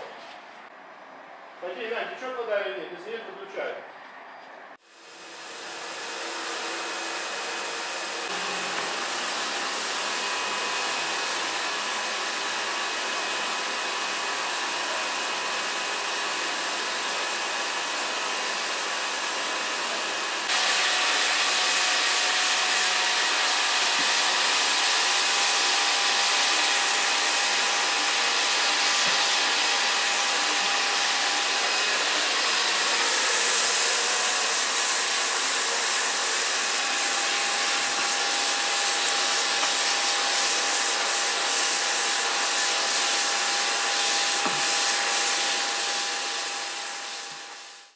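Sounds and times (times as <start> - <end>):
pressure washer water jet hiss: 6.3 - 12.5, 20.5 - 47.9.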